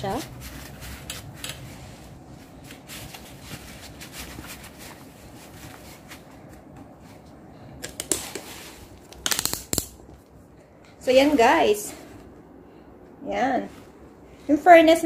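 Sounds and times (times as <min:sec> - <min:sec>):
rustling of feet in slippers: 0:00.0 - 0:09.1
rubber soles slapping tile floor: 0:07.8 - 0:10.3.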